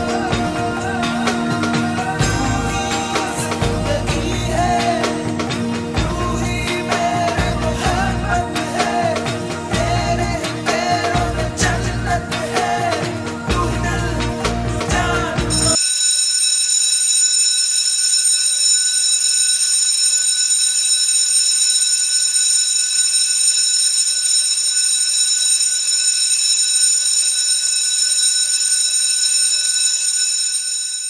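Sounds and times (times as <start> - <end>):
music: 0.0 - 15.8
high-pitched electronic tone: 0.0 - 16.0.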